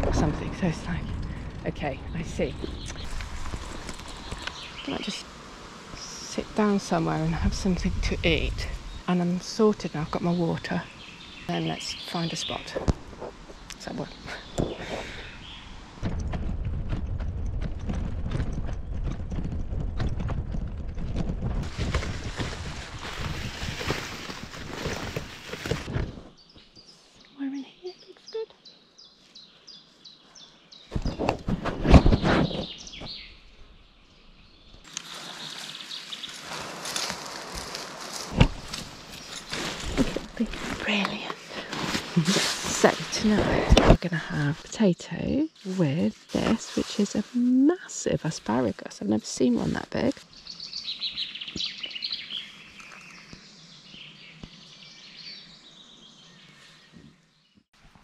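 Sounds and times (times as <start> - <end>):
birds chirping: 0.0 - 57.7
steady hissing rustle: 1.0 - 16.0, 34.8 - 44.8, 45.4 - 53.5
loud crunching and rustling: 2.6 - 4.9, 14.4 - 26.4, 34.8 - 44.7.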